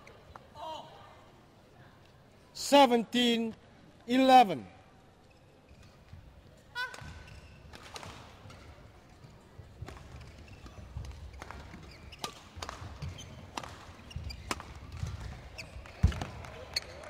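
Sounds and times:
racket striking shuttlecock: 0:11.0 - 0:16.4.

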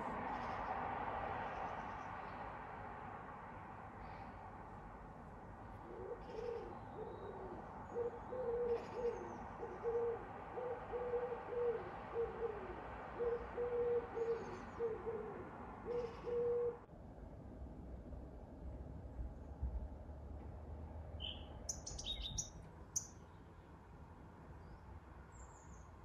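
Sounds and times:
distant traffic hum: 0:00.0 - 0:26.0
pigeon cooing: 0:05.8 - 0:16.9
faint small bird chirps: 0:21.2 - 0:23.4.

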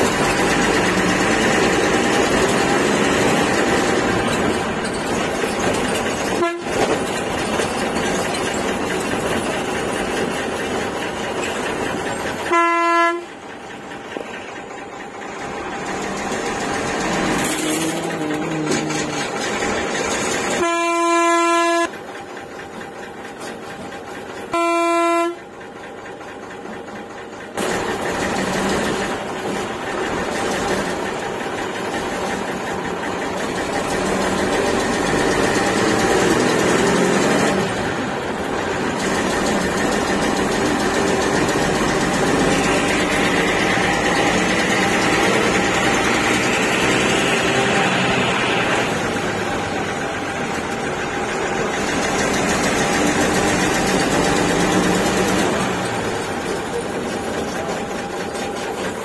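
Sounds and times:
bus engine and road noise: 0:00.0 - 0:59.0
bus horn blast: 0:06.3 - 0:07.0, 0:12.4 - 0:13.4, 0:20.4 - 0:21.9, 0:24.5 - 0:25.4.

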